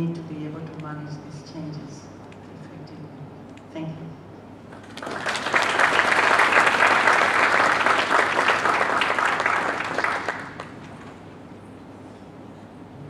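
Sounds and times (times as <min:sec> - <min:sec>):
audience applauding: 0:04.7 - 0:10.8.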